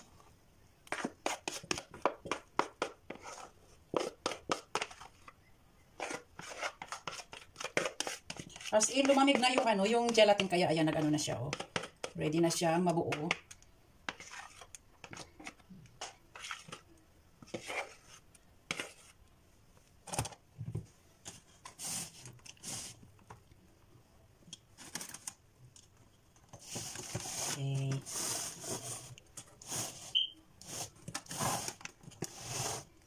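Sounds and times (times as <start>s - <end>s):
spatula scraping and spreading filling: 0.8s - 5.4s, 6.0s - 12.2s, 13.1s - 19.2s, 26.5s - 33.0s.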